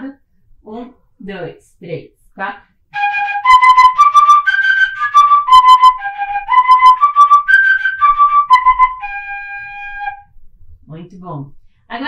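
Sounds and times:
fife playing arpeggio: 3.0s - 10.2s.

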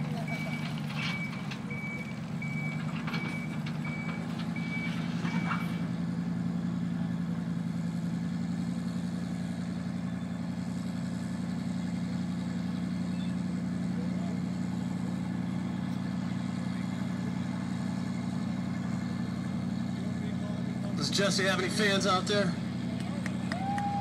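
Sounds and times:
vehicle backup alarm beeping: 0.0s - 5.8s, 9.9s - 10.6s, 13.0s - 13.5s
diesel truck engine idling: 0.0s - 24.0s.

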